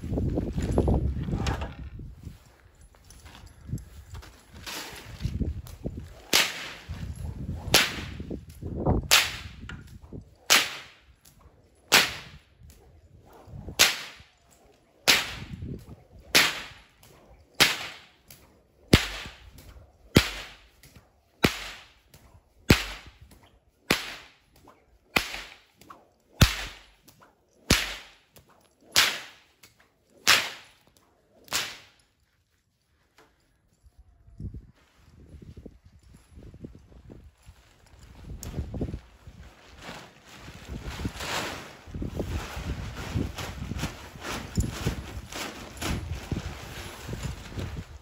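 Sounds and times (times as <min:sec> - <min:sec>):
whip cracking: 0:05.7 - 0:32.0.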